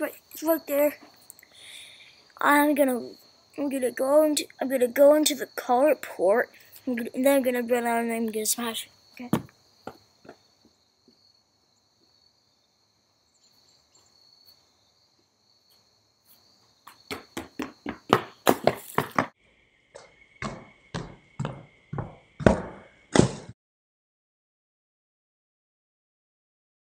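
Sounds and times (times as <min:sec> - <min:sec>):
insects chirring: 0:00.0 - 0:23.1
hard stomps: 0:09.2 - 0:10.4, 0:16.9 - 0:19.3, 0:20.0 - 0:23.6
footsteps running on asphalt: 0:16.8 - 0:19.4, 0:20.0 - 0:22.7.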